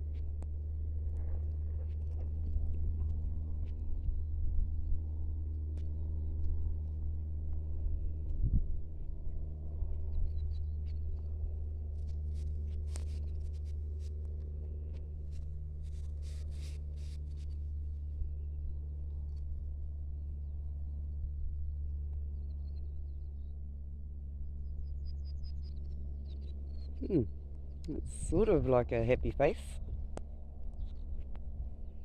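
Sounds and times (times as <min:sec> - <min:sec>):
steady low hum: 0:00.0 - 0:32.0
footsteps on dry grassy dirt: 0:09.8 - 0:18.0
crackling rustles: 0:10.2 - 0:18.1.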